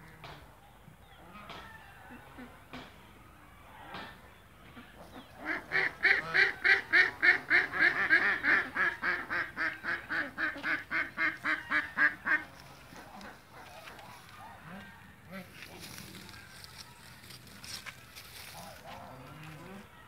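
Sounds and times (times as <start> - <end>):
duck quacking rapidly: 5.4 - 13.6.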